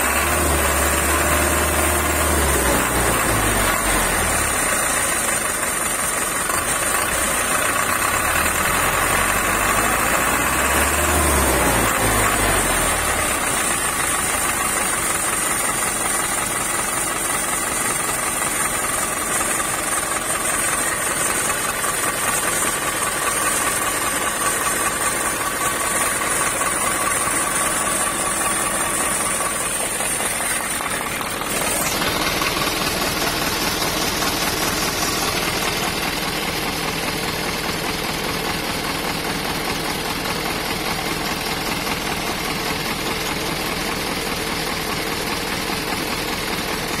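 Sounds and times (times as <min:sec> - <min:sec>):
engine idling: 0:00.0 - 0:47.0
truck diesel engine idling: 0:00.0 - 0:47.0.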